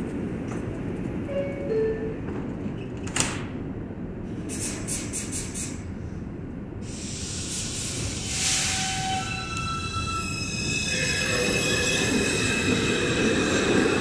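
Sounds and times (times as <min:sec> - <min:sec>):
train click: 0:00.0 - 0:01.3
train air hisses: 0:04.3 - 0:09.3.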